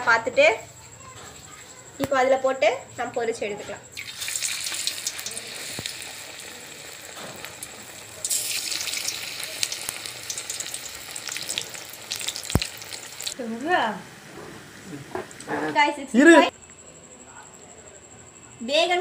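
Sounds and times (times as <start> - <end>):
slices sizzling in hot oil: 4.0 - 14.0.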